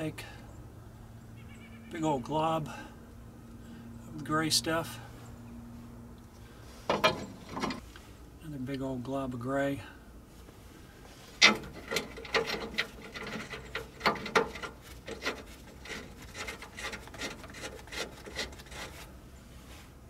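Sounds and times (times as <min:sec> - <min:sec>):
metal bolt clicking and clinking: 0:06.9 - 0:07.8, 0:11.4 - 0:16.6.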